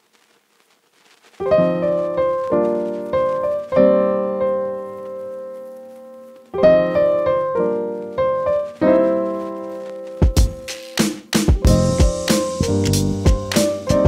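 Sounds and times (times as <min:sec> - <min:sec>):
slow keyboard chords: 0:11.5 - 0:14.0.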